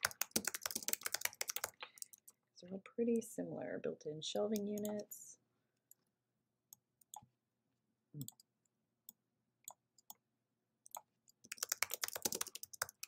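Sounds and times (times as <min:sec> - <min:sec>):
keyboard typing: 0:00.0 - 0:02.4, 0:06.7 - 0:07.3, 0:08.2 - 0:10.2, 0:10.8 - 0:13.0
computer mouse clicks: 0:06.7 - 0:07.3, 0:10.9 - 0:13.0.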